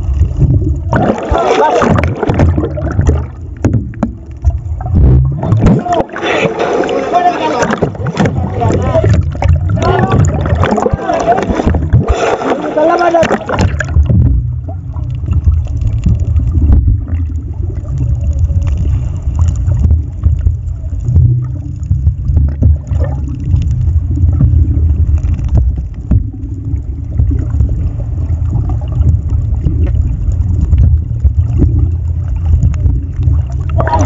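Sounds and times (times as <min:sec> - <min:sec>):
muffled underwater rumble: 0:00.0 - 0:34.0.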